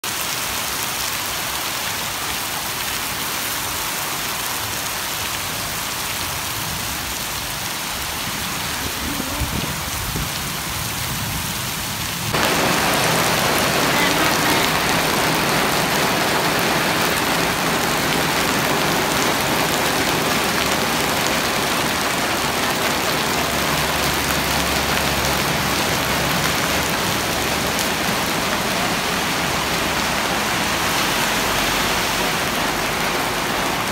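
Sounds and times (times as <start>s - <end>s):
heavy rain on pavement: 0.0s - 33.9s.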